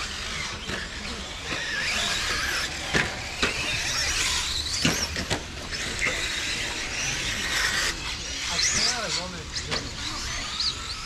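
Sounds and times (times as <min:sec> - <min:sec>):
electric motor whine: 0:00.0 - 0:11.0.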